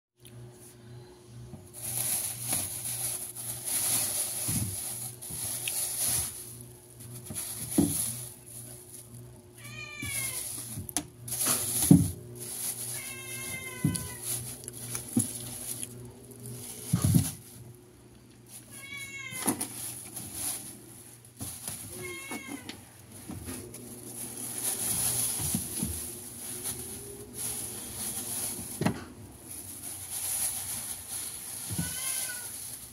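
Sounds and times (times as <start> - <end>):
plastic bags rustling: 1.7 - 32.9
cat meowing: 9.6 - 10.5, 12.9 - 14.3, 18.6 - 19.6, 21.9 - 22.8, 31.7 - 32.6.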